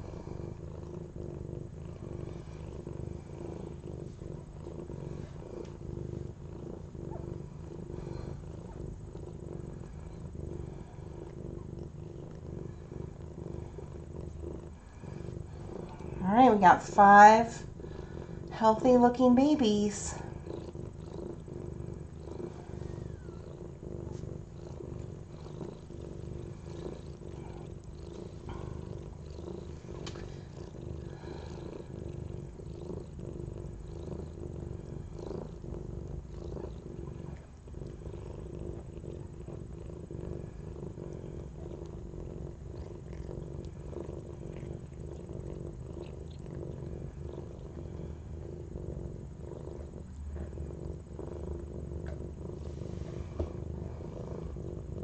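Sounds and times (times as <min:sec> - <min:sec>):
cat purring: 0:00.0 - 0:55.0
cat licking kitten: 0:18.4 - 0:35.7, 0:36.4 - 0:48.8.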